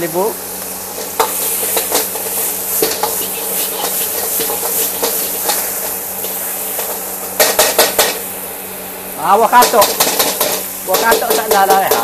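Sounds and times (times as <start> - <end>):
food sizzling in a wok: 0.0 - 12.0
metal ladle scraping wok: 0.9 - 8.1
ladle knocking against wok: 9.6 - 12.0.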